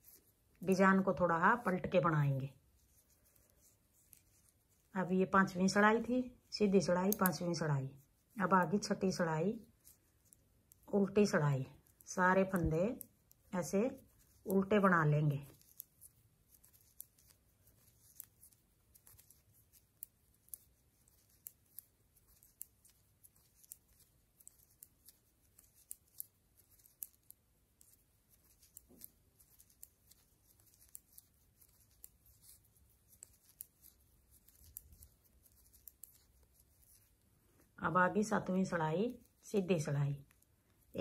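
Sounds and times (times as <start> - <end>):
knitting needles clicking: 0.0 - 2.1, 2.8 - 37.3.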